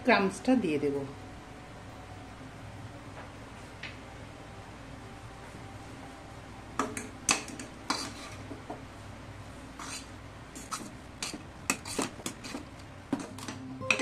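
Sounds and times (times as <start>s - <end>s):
metal spatula scraping a pan: 7.3s - 8.5s, 9.8s - 12.6s.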